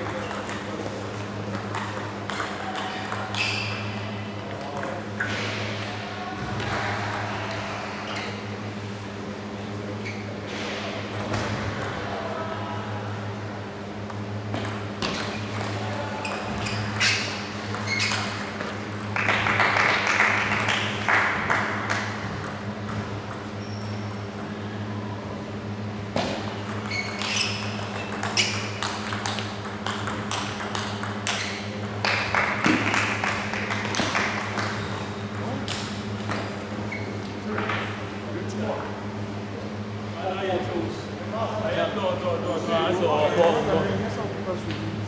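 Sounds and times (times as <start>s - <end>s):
steady low hum: 0.0s - 45.0s
table tennis ball clicks: 26.6s - 33.0s.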